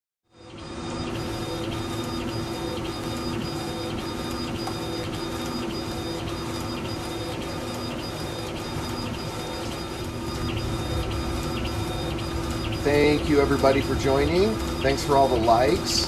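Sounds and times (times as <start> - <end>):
laser engraver whirring: 0.3 - 16.0.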